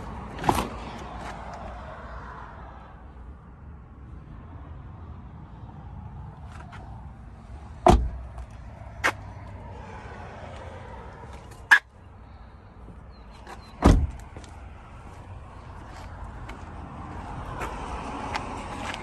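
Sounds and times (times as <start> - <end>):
car door thumps: 7.8 - 8.3, 13.8 - 14.2.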